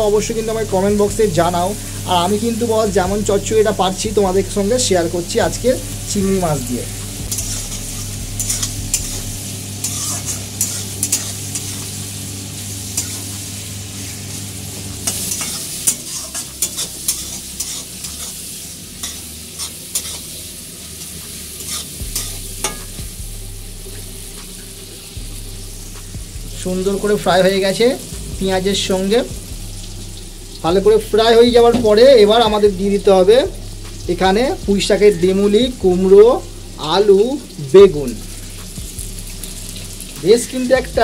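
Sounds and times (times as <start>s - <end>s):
prawns and onions sizzling in oil: 0.0s - 41.0s
steady low hum: 5.5s - 15.6s
spatula scraping a pan: 7.3s - 12.0s, 12.9s - 13.4s, 15.0s - 20.3s, 20.9s - 23.0s.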